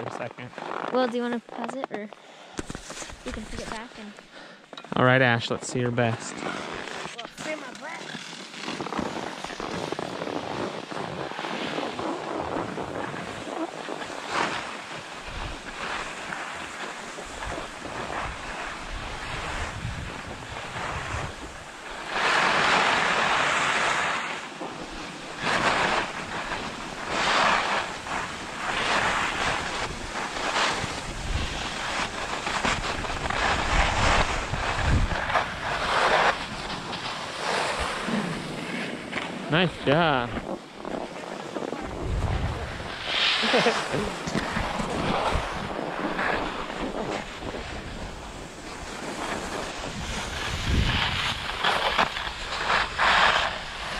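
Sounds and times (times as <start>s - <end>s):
skis scraping over snow: 0.0s - 4.2s, 4.9s - 53.9s
wind on microphone: 8.8s - 14.6s, 17.2s - 38.7s, 39.7s - 53.9s.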